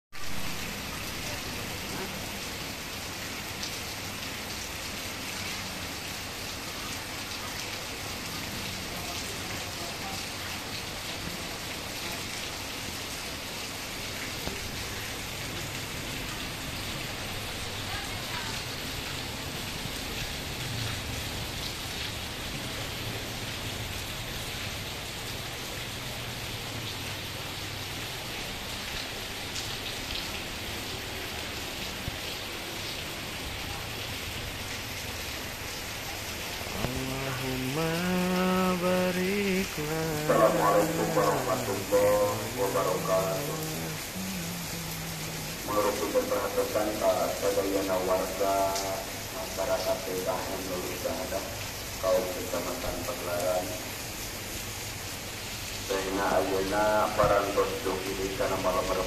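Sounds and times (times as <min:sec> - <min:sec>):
heavy rain on pavement: 0:00.1 - 0:59.0.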